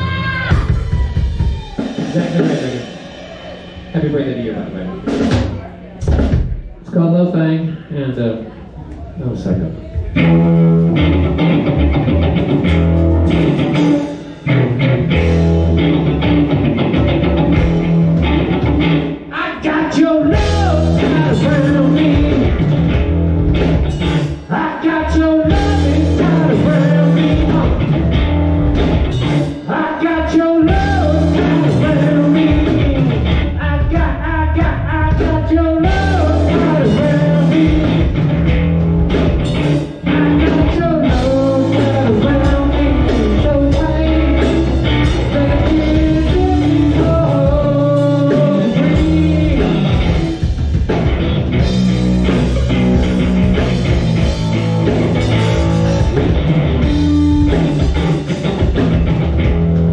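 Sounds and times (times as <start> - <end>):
live rock band playing: 0.0 - 6.9, 9.7 - 59.9
person singing: 19.3 - 22.7, 24.5 - 28.0, 29.6 - 38.2, 39.9 - 50.4.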